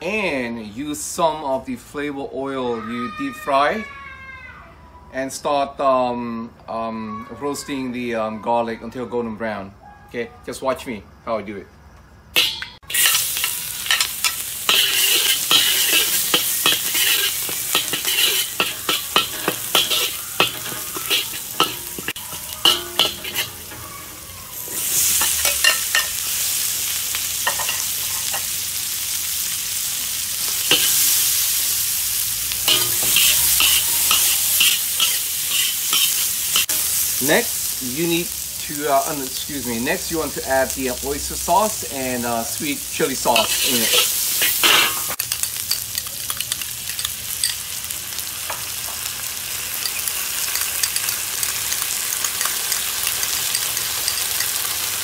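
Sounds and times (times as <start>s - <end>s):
metal spatula scraping a wok: 12.4s - 26.6s, 30.4s - 31.6s, 32.5s - 37.2s, 43.2s - 47.6s
food sizzling in hot oil: 12.4s - 55.0s.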